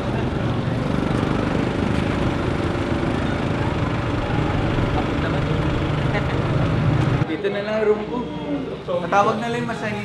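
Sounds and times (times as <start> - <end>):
low engine-like drone: 0.0 - 7.3.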